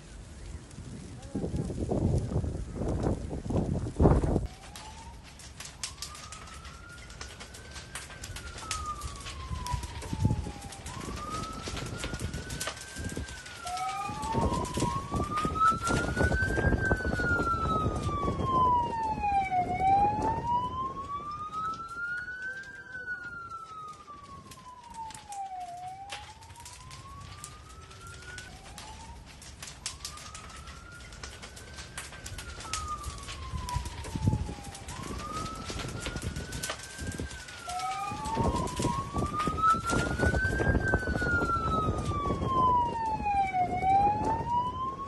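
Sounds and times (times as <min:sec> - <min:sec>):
fire crackling and popping: 0:00.0 - 0:45.0
emergency siren wailing: 0:00.1 - 0:45.0.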